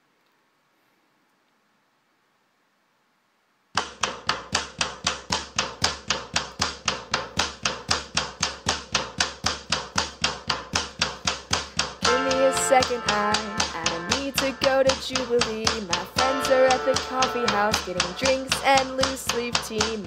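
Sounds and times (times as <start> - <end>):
repeated piano chords: 12.0 - 19.6.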